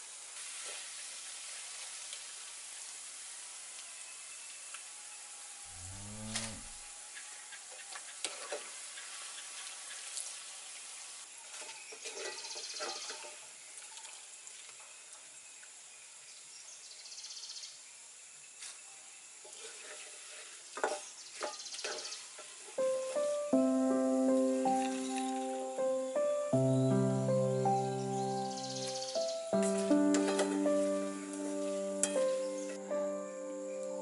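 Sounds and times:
food sizzling in hot oil: 0:00.1 - 0:04.1, 0:28.0 - 0:32.9.

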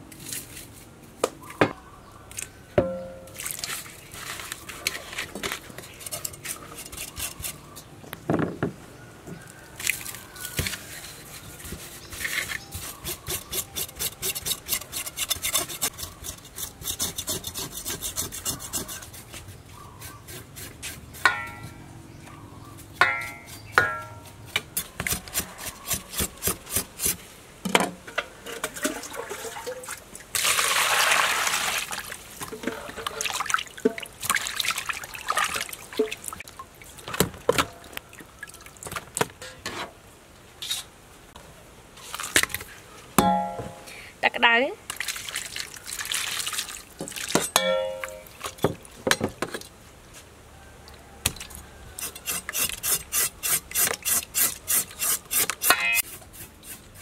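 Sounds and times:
ringing knocks on metal bowl: 0:47.6 - 0:48.2.

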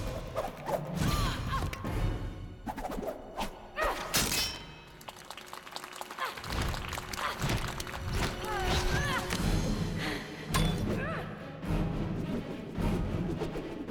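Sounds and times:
film score music: 0:00.0 - 0:13.9
metal blades clashing and whooshing: 0:03.5 - 0:04.9, 0:10.5 - 0:11.0.

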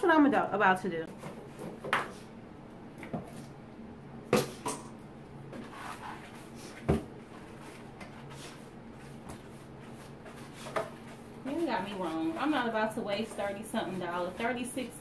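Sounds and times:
hand brush sweeping powder: 0:09.8 - 0:15.0.

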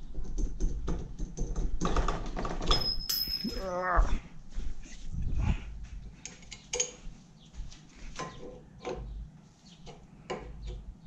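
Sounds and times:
metal clinks and scrapes: 0:02.7 - 0:03.8.

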